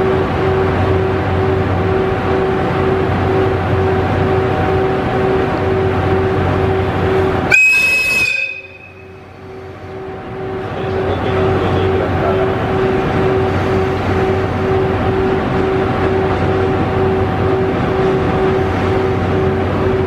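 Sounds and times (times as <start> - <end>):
locomotive whistle blast: 7.5 - 9.2.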